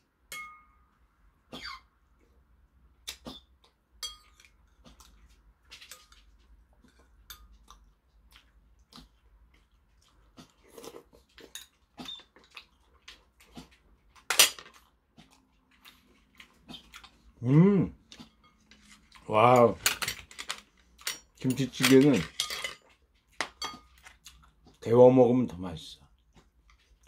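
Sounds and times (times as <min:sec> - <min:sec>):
spoon clinking on ceramic bowl: 0:00.3 - 0:00.8, 0:04.0 - 0:04.4
quiet chewing: 0:03.0 - 0:19.8, 0:22.8 - 0:25.0, 0:26.0 - 0:27.0.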